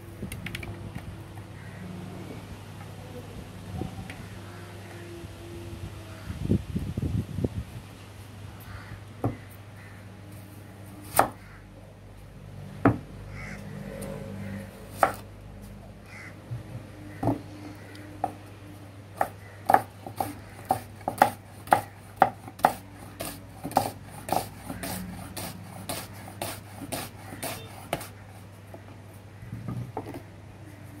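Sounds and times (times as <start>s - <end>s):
knife chopping on wooden board: 11.1s - 11.4s, 14.9s - 15.2s, 17.1s - 17.4s, 19.2s - 28.2s.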